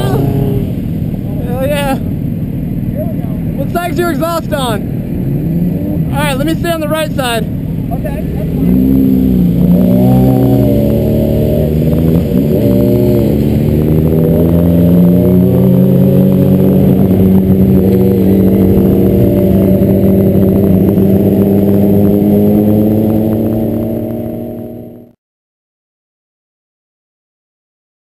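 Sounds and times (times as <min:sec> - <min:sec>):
motorcycle engine running hard: 0:07.4 - 0:25.1.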